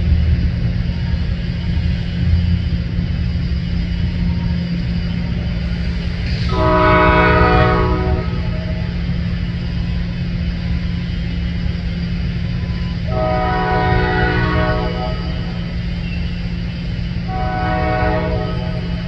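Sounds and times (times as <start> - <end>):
low train rumble: 0.0 - 19.0
locomotive air horn blasts: 6.5 - 8.6, 13.1 - 15.5, 17.3 - 19.0.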